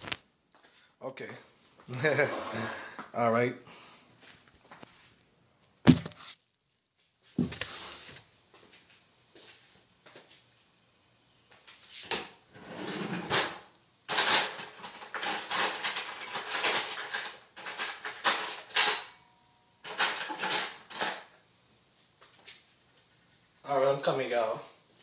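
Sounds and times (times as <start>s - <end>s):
dishes and utensils clattering: 13.0s - 19.2s, 19.8s - 21.3s.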